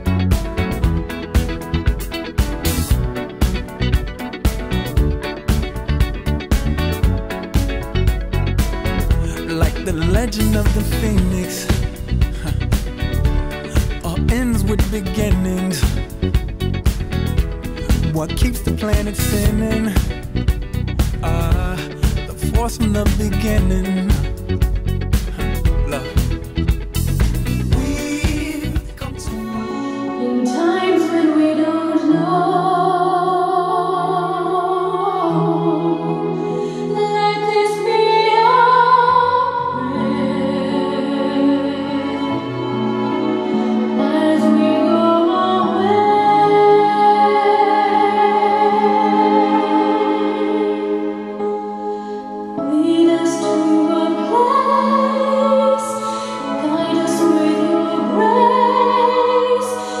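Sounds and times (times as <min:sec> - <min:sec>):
steady low drone: 0:04.7 - 0:29.5
sustained bass note: 0:07.9 - 0:18.3, 0:19.3 - 0:29.5
person singing with vibrato: 0:09.0 - 0:16.4, 0:17.7 - 0:20.3, 0:21.1 - 0:24.6, 0:25.2 - 0:26.4, 0:27.0 - 1:00.0.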